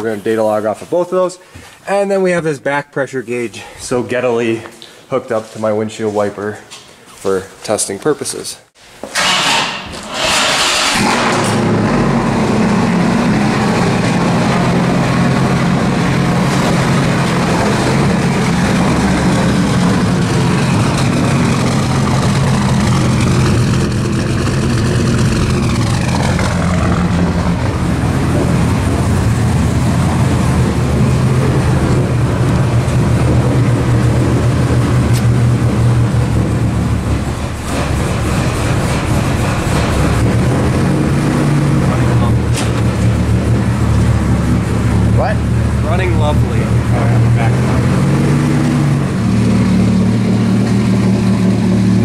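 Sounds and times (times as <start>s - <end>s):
car engine idling: 10.4s - 52.0s.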